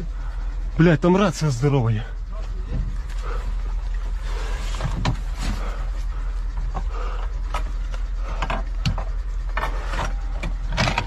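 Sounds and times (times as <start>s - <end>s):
steady low hum: 0.0s - 11.0s
gear clattering: 3.9s - 11.0s.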